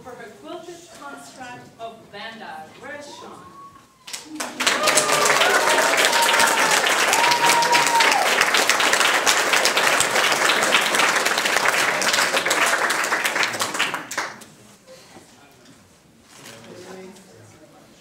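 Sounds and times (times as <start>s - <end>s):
crowd applauding: 4.0s - 14.4s.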